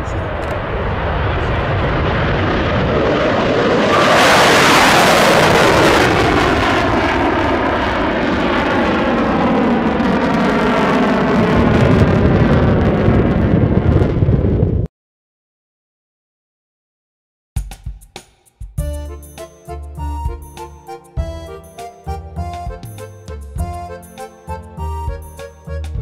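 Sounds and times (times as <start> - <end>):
wind rush on microphone: 0.0 - 14.9.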